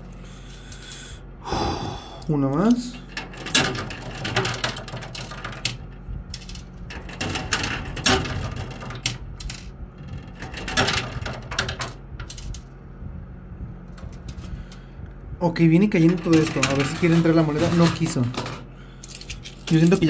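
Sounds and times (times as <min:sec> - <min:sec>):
low machine hum: 0:00.0 - 0:20.0
coins clinking in arcade machine: 0:03.0 - 0:05.8, 0:06.4 - 0:12.6, 0:16.0 - 0:20.0.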